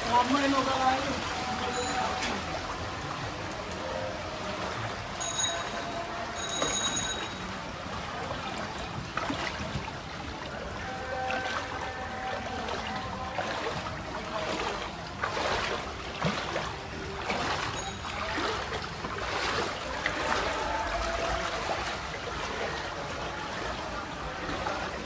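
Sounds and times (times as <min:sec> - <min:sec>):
heavy rain: 0:00.0 - 0:08.5, 0:19.2 - 0:24.6
water splashing in flooded street: 0:00.0 - 0:25.0.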